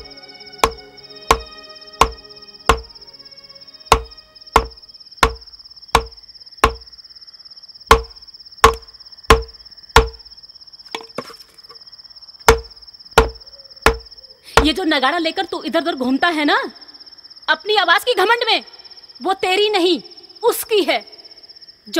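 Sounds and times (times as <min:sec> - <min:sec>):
cricket chirr: 0:00.0 - 0:21.9
drum struck with a stick: 0:00.6 - 0:02.9, 0:03.9 - 0:05.4, 0:06.0 - 0:06.8.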